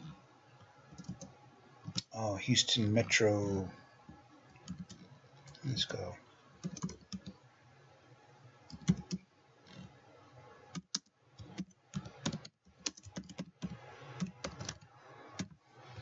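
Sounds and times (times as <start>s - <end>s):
typing on computer keyboard: 1.0s - 1.3s, 4.6s - 5.0s, 6.6s - 7.3s, 8.7s - 9.2s, 10.8s - 15.6s.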